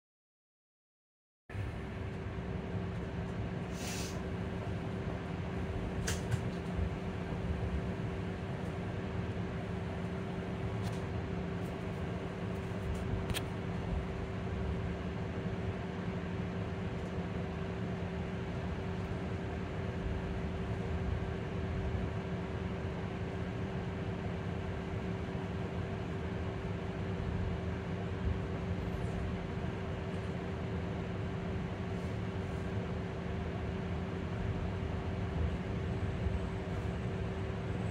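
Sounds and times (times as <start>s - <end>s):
electric bus cabin drone: 1.5s - 37.9s
low rumble and hiss: 1.5s - 37.9s
short hiss: 3.7s - 4.2s.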